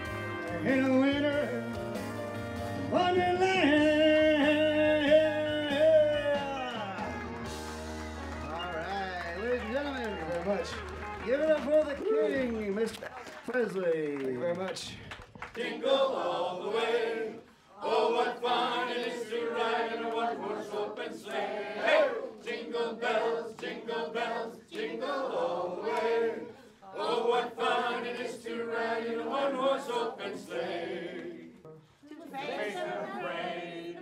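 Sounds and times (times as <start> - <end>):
group singing a christmas song: 15.5 - 34.0.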